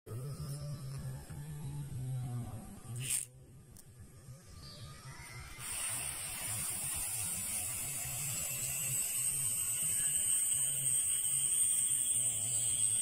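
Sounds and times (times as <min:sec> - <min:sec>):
firework fuse hissing: 0:05.4 - 0:13.0.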